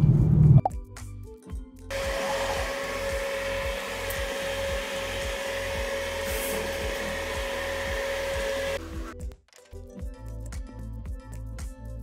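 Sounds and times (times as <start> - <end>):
background music with bass beat: 8.8 - 12.0.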